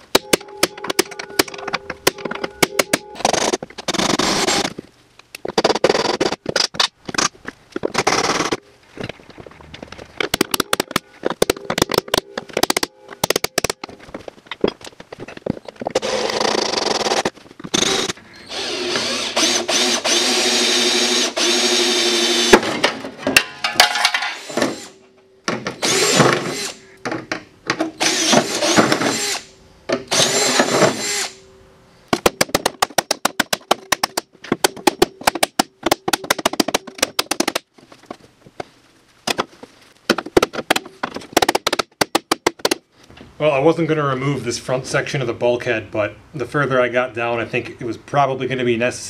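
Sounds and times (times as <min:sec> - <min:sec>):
cordless drill drilling rivets: 0:03.2 - 0:04.8, 0:07.9 - 0:08.6, 0:15.9 - 0:22.6, 0:24.2 - 0:25.0, 0:25.6 - 0:26.8, 0:27.8 - 0:29.5, 0:30.1 - 0:31.4.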